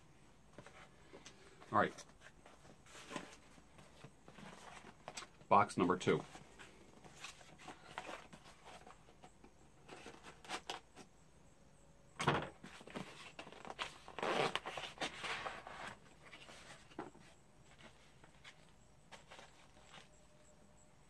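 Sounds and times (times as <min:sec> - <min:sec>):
cardboard and tape rasping: 0:12.8 - 0:20.1.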